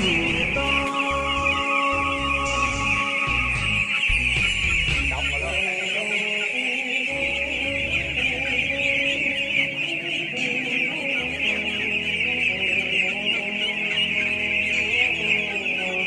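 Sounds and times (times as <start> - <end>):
flock of ducklings chattering: 0.0 - 16.0
low sustained music: 0.0 - 16.0.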